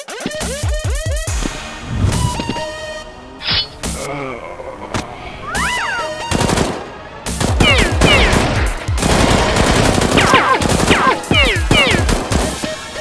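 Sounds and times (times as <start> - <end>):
machine-gun fire: 7.4 - 12.6.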